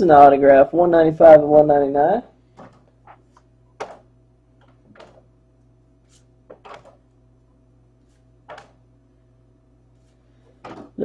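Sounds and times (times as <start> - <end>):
steady low hum: 0.0 - 11.0
trading cards clicking and rustling: 6.2 - 7.0, 8.5 - 8.8.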